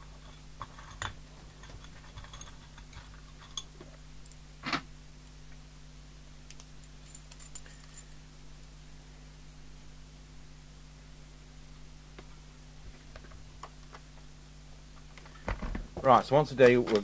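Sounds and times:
steady low hum: 0:00.0 - 0:17.0
clicks and taps on a workbench: 0:15.2 - 0:17.0.

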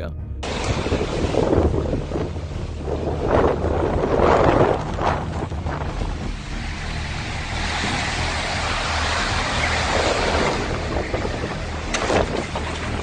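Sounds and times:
low rumble: 0:00.0 - 0:13.0
heavy rain: 0:00.4 - 0:13.0
strong wind: 0:00.4 - 0:13.0.

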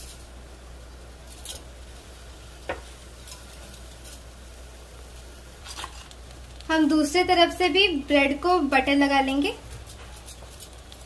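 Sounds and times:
steady low hum: 0:00.0 - 0:11.0
utensils clicking on griddle pan: 0:02.6 - 0:04.3, 0:09.7 - 0:11.0.

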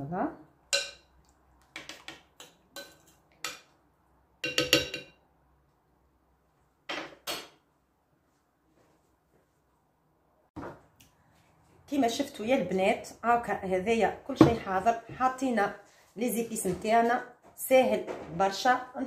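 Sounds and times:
metal spoon clinking against glass dish: 0:00.7 - 0:01.1, 0:04.4 - 0:05.2.

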